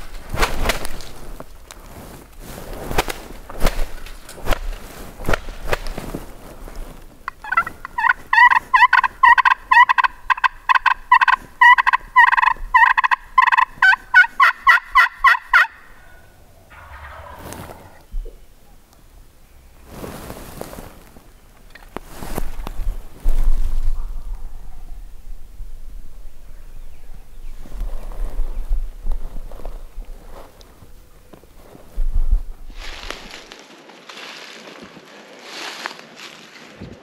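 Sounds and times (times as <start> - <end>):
rustles: 0.0 - 37.0
turkey call yelps: 7.4 - 18.0.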